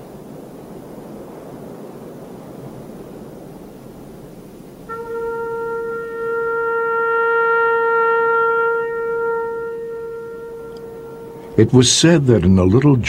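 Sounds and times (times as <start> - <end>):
steady hiss: 0.0 - 13.0
long wind instrument note: 4.8 - 11.9.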